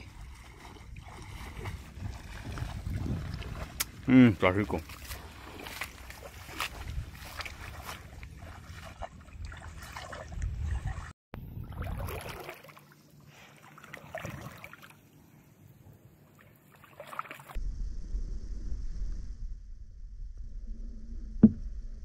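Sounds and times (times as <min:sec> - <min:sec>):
creek water sloshing and splashing: 0:00.0 - 0:15.5, 0:16.2 - 0:17.6
low rumble: 0:17.6 - 0:22.0.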